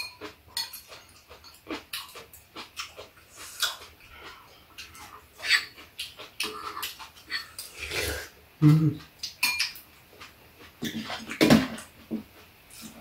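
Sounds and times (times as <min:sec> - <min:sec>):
utensils clinking against bowls: 0:00.0 - 0:02.2, 0:09.2 - 0:09.8
people eating mouth noises: 0:00.8 - 0:11.4.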